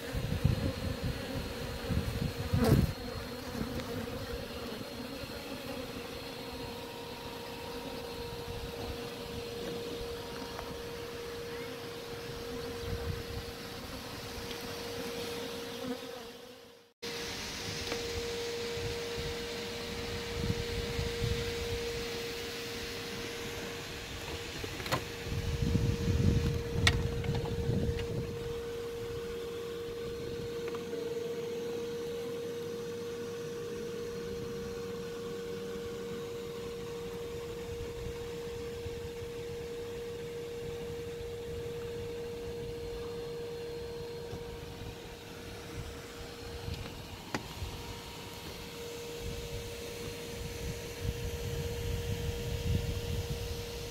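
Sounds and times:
small motor humming: 0.0s - 53.9s
wind buffeting microphone: 24.4s - 29.2s, 50.3s - 53.9s.

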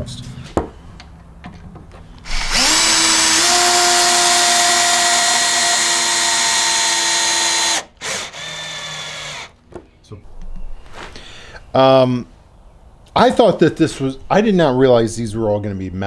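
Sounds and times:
drill driver motor whine: 2.2s - 9.5s.

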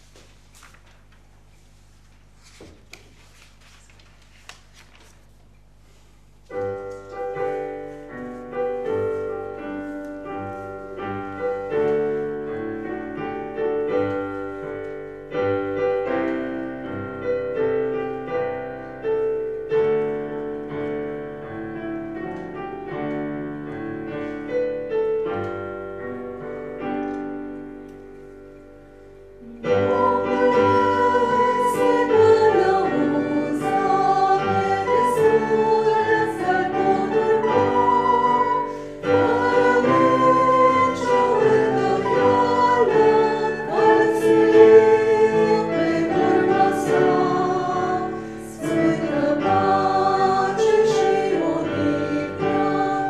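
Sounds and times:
piano playing slow chords: 6.4s - 53.0s
congregation singing: 29.4s - 53.0s.

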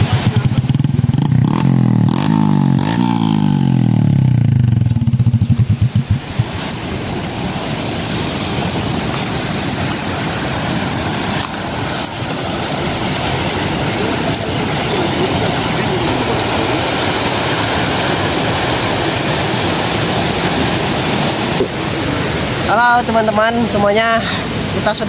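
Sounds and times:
motorcycle engine revving: 0.0s - 7.0s
steady rushing noise: 0.0s - 25.0s.

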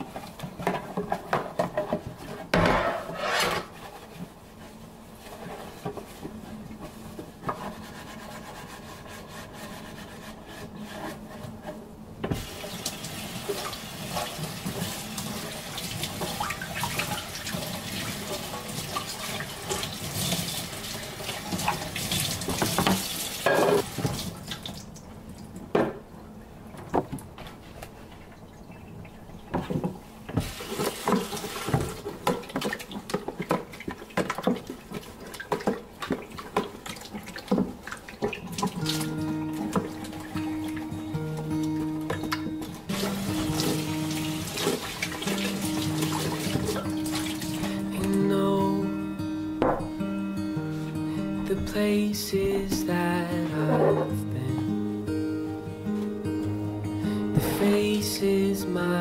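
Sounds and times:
knocks and clatter of handling: 0.0s - 7.8s, 21.5s - 24.3s, 25.7s - 26.1s, 26.7s - 28.4s, 29.4s - 40.8s
tap water running into sink: 12.2s - 25.0s, 29.5s - 40.9s, 42.0s - 48.2s.

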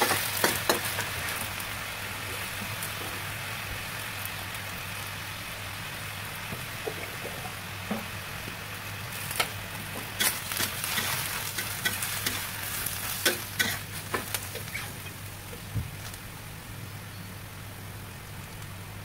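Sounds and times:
vegetables sizzling in a wok: 0.0s - 19.0s.

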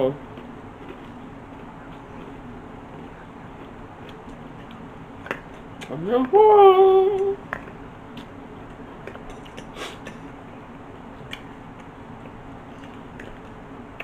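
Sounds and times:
person humming: 5.9s - 7.4s.

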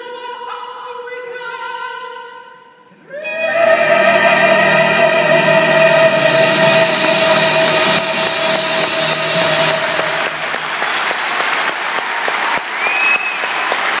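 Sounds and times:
orchestra final chord: 3.3s - 11.4s
audience applauding: 7.0s - 14.0s
short whistle: 12.8s - 13.6s.

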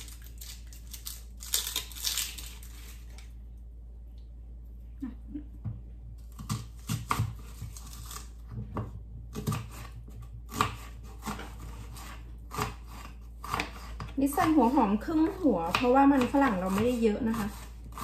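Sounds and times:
knife chopping on wooden board: 6.3s - 7.8s, 8.6s - 18.0s.

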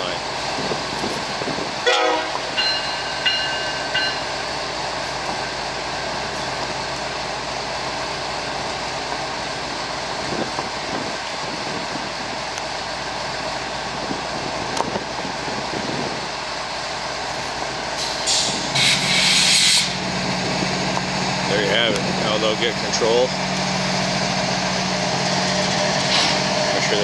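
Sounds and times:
diesel locomotive idling: 0.0s - 27.0s
compressed air hissing: 18.0s - 20.0s.

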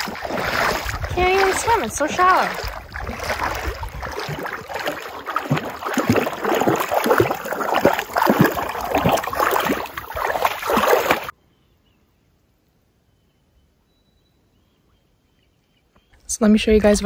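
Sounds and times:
dog splashing through water: 0.0s - 11.3s.

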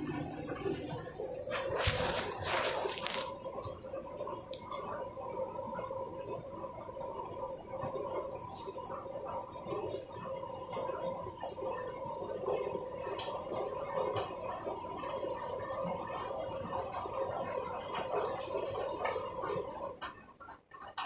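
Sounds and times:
washing machine hum: 0.0s - 21.0s.

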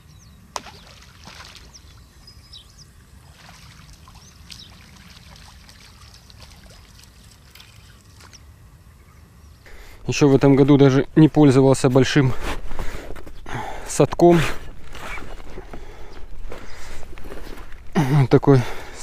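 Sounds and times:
bird chirps: 1.6s - 3.0s.

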